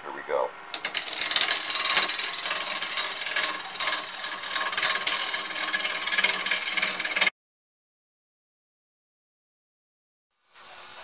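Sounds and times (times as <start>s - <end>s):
lathe gouge scraping wood: 0.7s - 7.3s.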